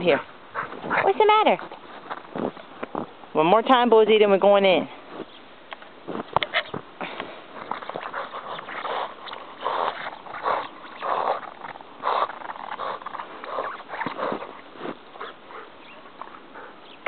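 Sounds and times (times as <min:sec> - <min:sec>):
dog panting: 0:00.0 - 0:02.2, 0:07.6 - 0:17.0.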